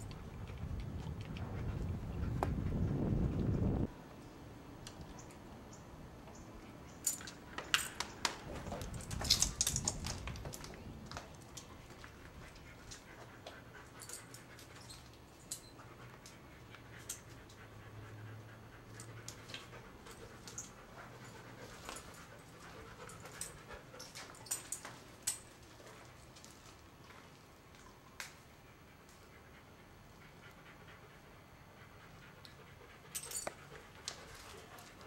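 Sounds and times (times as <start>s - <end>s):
dog panting: 11.6s - 15.1s, 15.7s - 25.0s, 28.6s - 35.0s.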